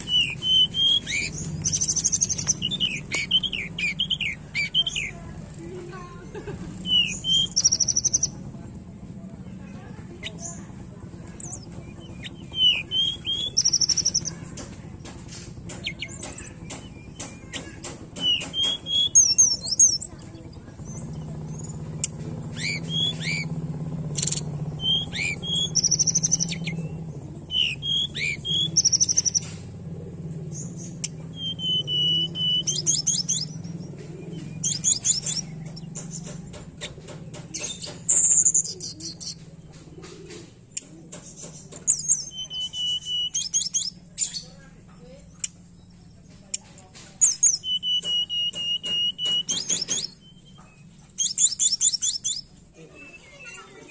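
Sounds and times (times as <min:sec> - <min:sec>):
bird singing whistled phrases: 0:00.0 - 0:05.2, 0:06.8 - 0:08.4, 0:11.4 - 0:14.4, 0:18.2 - 0:20.1, 0:22.5 - 0:23.5, 0:24.2 - 0:29.5, 0:30.8 - 0:35.6, 0:41.9 - 0:44.5, 0:47.2 - 0:53.9.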